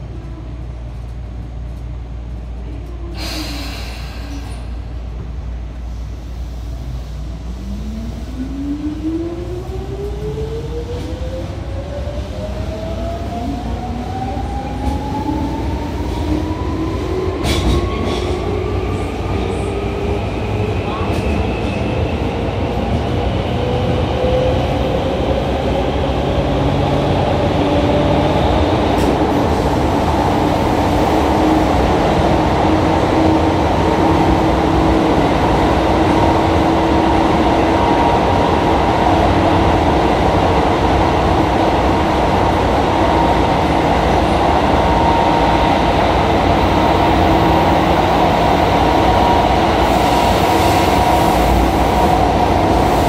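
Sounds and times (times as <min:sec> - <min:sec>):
train wheel and rail noise: 0:00.0 - 0:53.0.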